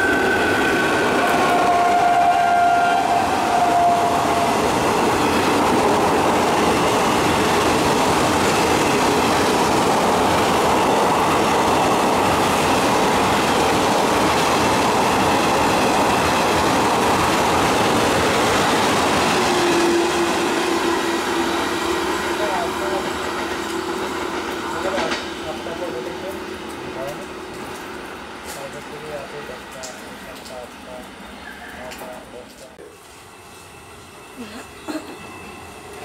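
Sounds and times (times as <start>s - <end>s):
train horn: 0.0s - 4.8s, 19.3s - 24.0s
train wheels rolling on rails: 0.0s - 34.4s, 35.0s - 36.0s.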